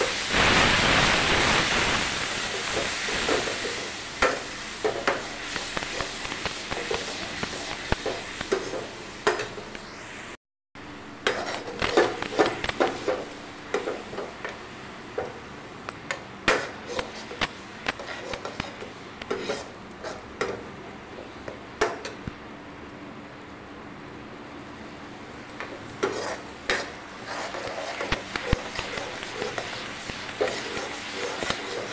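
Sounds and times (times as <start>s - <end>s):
metal spoon scraping a pan: 11.2s - 14.0s, 16.5s - 17.4s, 18.0s - 20.6s, 25.6s - 31.9s.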